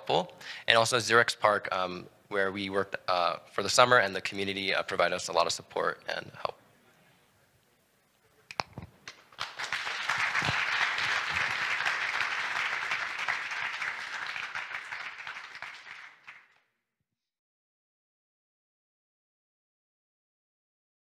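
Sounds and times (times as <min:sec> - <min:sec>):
audience applause: 0:09.4 - 0:16.6.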